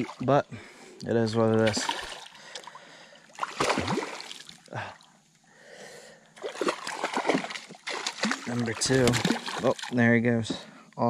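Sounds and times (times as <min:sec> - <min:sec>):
fish thrashing and splashing water: 0:01.5 - 0:04.6, 0:06.4 - 0:10.6.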